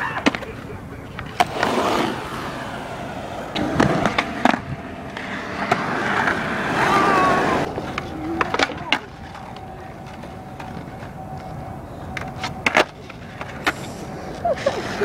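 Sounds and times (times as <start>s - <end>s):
skateboard clacking on concrete: 0.0s - 2.5s, 7.6s - 15.0s
skateboard wheels rolling on concrete: 0.0s - 15.0s.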